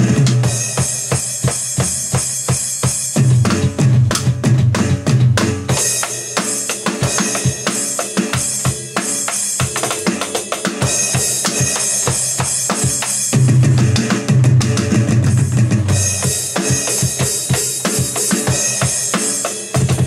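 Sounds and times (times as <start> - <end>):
snare and tom hits: 0.0 - 20.0
bass drum strokes: 3.2 - 6.0.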